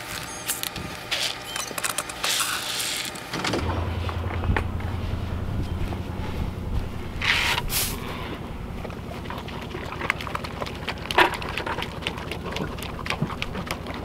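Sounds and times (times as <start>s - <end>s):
pigs chewing and crunching feed: 0.0s - 14.0s
steady low rumble: 3.6s - 13.7s.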